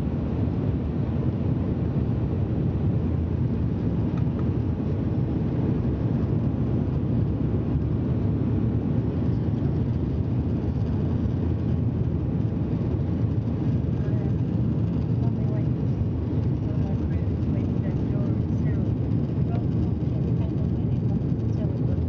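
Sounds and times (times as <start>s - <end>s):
turboprop cabin drone: 0.0s - 22.0s.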